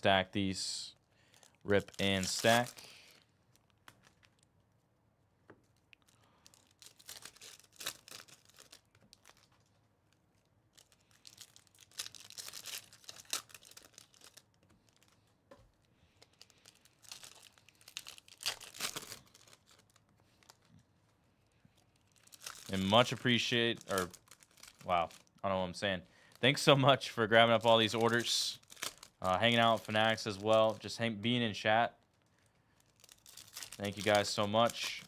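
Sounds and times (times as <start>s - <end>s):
foil wrappers crinkling: 1.3s - 4.5s, 6.1s - 15.3s, 16.1s - 20.8s, 21.7s - 25.4s, 26.2s - 31.4s, 32.0s - 35.0s.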